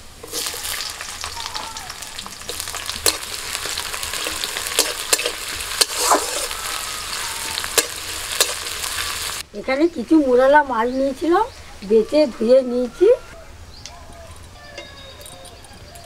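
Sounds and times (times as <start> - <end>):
vegetables sizzling in oil: 0.0 - 11.5.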